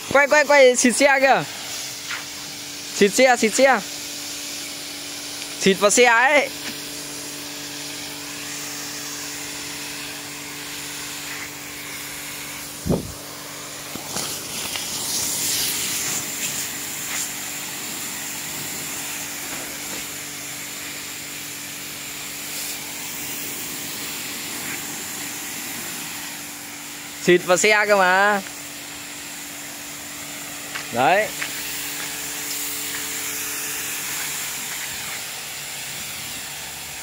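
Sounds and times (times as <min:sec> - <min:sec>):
pressure washer humming: 0:00.0 - 0:37.0
water jet hissing: 0:00.0 - 0:37.0.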